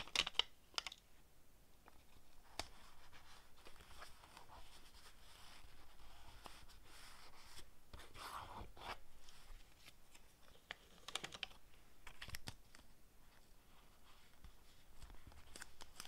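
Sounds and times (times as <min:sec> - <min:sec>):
paper rustling and crinkling: 0:13.9 - 0:16.0.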